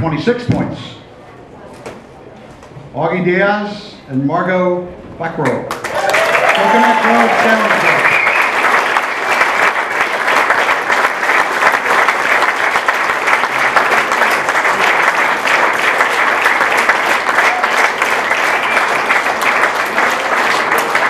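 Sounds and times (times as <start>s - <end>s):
crowd applauding: 5.7s - 21.0s.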